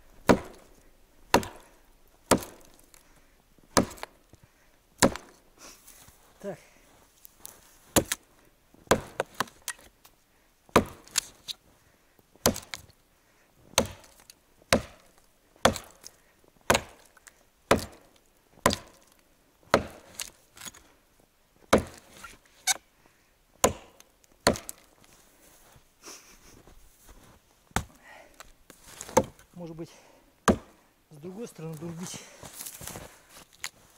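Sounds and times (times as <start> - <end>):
axe chopping wood: 0.2 - 2.9, 3.7 - 4.2, 5.0 - 5.4, 7.9 - 8.2, 8.9 - 9.9, 10.7 - 11.3, 12.4 - 12.8, 13.7 - 19.1, 19.7 - 20.4, 21.7 - 22.8, 23.6 - 24.9, 27.8 - 28.0, 29.0 - 29.5, 30.4 - 30.8.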